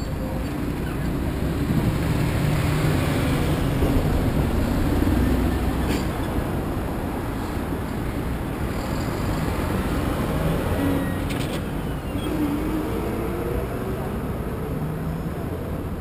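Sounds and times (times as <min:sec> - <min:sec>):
vehicles passing: 0:00.0 - 0:16.0.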